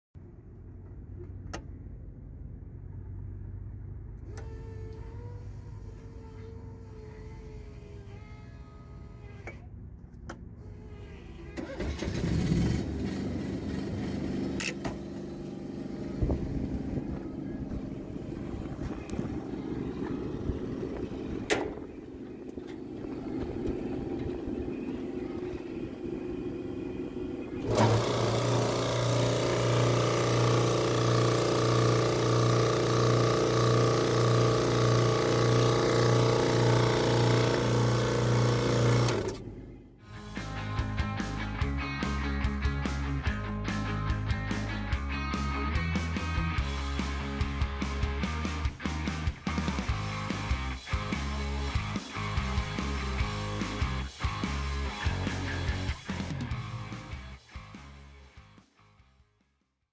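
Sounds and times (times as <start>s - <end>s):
air compressor pulsing hum: 4.2s - 9.7s, 15.2s - 39.6s
generator cranking and running: 11.4s - 39.9s.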